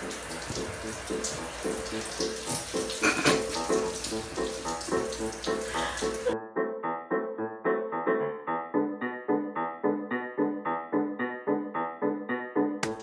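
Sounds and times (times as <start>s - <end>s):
water running: 0.0s - 6.4s
background music with repeating melody: 3.6s - 13.0s.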